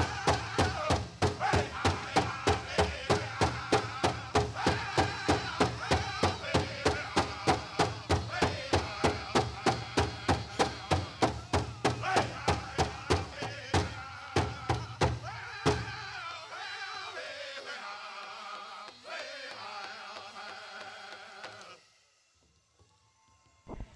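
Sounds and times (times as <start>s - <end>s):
big drum fast steady beat: 0.0s - 16.0s
high-pitched group singing: 0.0s - 21.8s.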